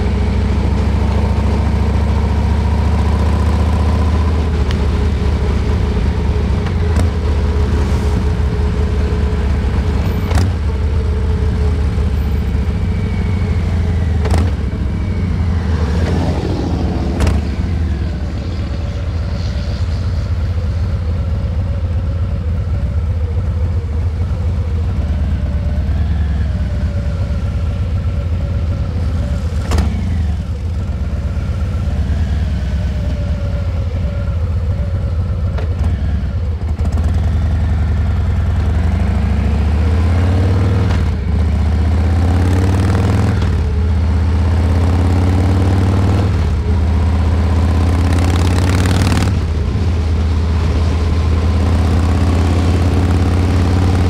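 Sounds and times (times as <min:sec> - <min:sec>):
motorcycle engine running: 0:00.0 - 0:54.0.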